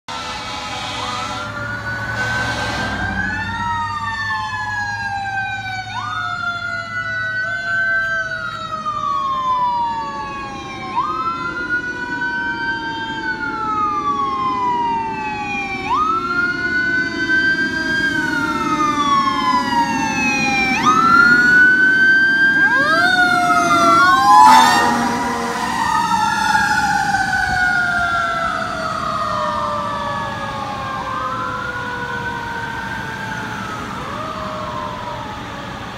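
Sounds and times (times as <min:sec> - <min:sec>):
fire truck siren wailing: 0:00.0 - 0:35.9
truck engine: 0:00.0 - 0:35.9
short loud horn blast: 0:00.1 - 0:03.2, 0:23.8 - 0:25.8.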